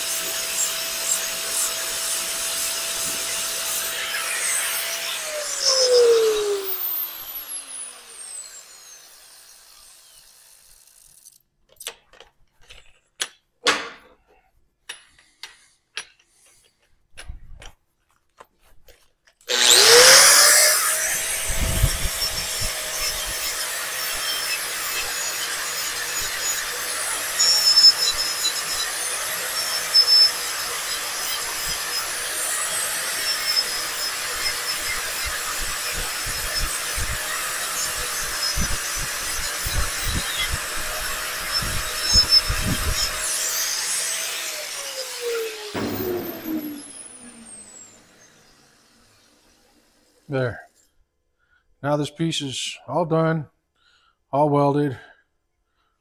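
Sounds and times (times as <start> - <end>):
angle grinder grinding steel: 0.0 - 11.4, 19.5 - 50.2
angle grinder spinning down: 0.0 - 11.4, 19.5 - 50.2
tools clicking and knocking: 11.2 - 17.8.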